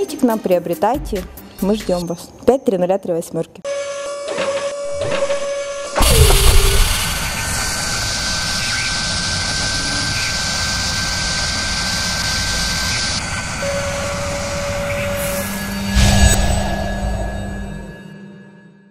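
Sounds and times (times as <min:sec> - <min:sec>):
synthetic rushing noise: 0:05.9 - 0:13.2
loud low boom: 0:06.0 - 0:09.2.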